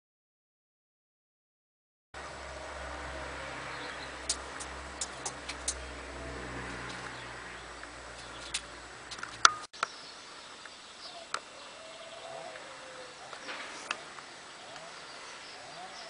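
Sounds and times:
sharp clicks: 4.2s - 5.8s
pigeons cooing softly: 11.0s - 16.0s.

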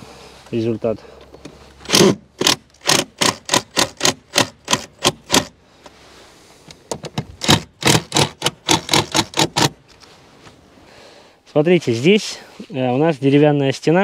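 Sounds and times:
impact driver driving screw into wood: 1.8s - 5.6s, 6.9s - 9.8s.

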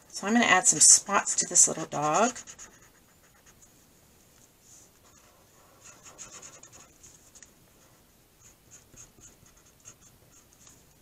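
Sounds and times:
marker scratching on paper: 0.0s - 3.7s, 4.6s - 10.8s.

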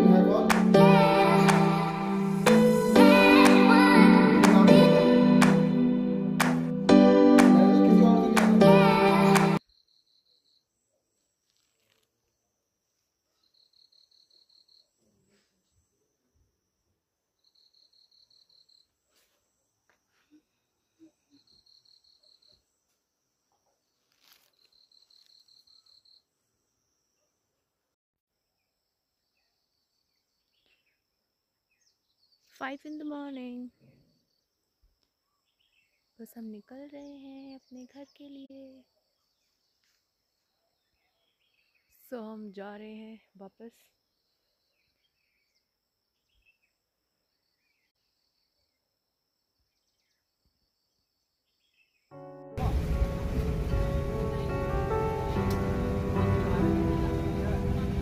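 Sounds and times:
faint bird chirps: 9.6s - 27.5s, 28.5s - 42.4s, 43.3s - 52.1s
soft rustle: 11.4s - 12.2s, 23.9s - 25.5s
insects trilling: 19.6s - 27.2s
soft bird chirps: 28.6s - 31.0s.

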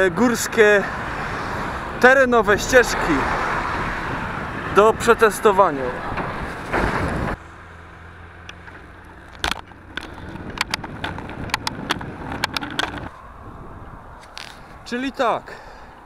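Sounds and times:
bicycle clicks and rattles: 8.5s - 13.1s.

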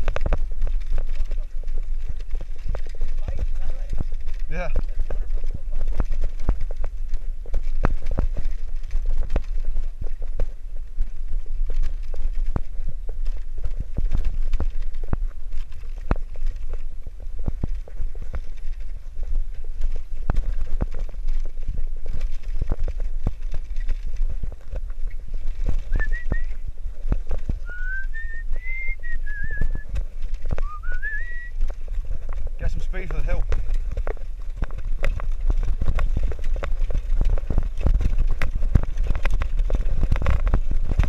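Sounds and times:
bicycle basket and frame clattering: 0.0s - 27.6s
wind rumble on microphone: 0.0s - 41.0s
person whistling: 25.9s - 26.5s, 27.7s - 29.8s, 30.6s - 31.5s.

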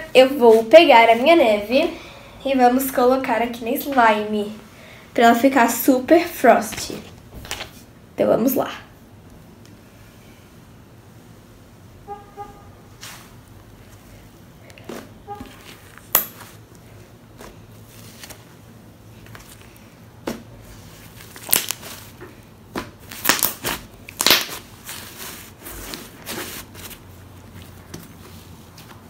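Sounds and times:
slime popping and crackling: 21.2s - 25.2s.

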